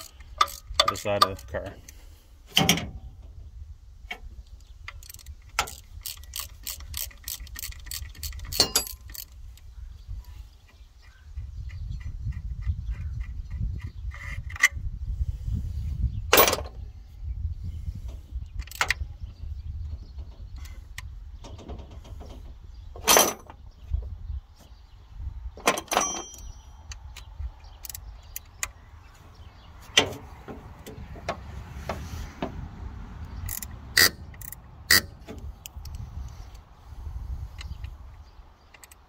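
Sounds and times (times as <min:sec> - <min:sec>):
wrenches clinking on metal: 0:00.0 - 0:01.7, 0:04.9 - 0:09.4, 0:23.0 - 0:23.6, 0:25.6 - 0:26.9.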